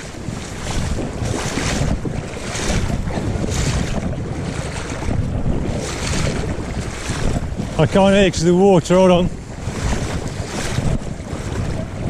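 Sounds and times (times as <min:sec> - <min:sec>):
river water rushing: 0:00.0 - 0:05.1
wind buffeting microphone: 0:00.0 - 0:12.0.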